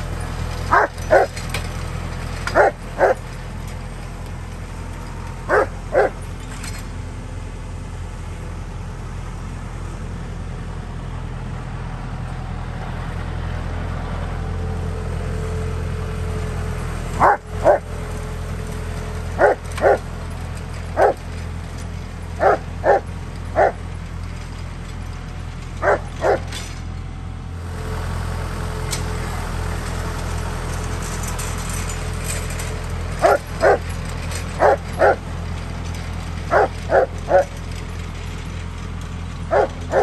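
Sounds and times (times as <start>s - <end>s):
tractor engine running: 0.0s - 40.0s
dog barking: 0.7s - 1.3s, 2.5s - 3.2s, 5.5s - 6.2s, 17.2s - 17.8s, 19.4s - 20.0s, 21.0s - 21.2s, 22.4s - 23.8s, 25.8s - 26.5s, 33.2s - 33.8s, 34.6s - 35.2s, 36.5s - 37.5s, 39.5s - 40.0s.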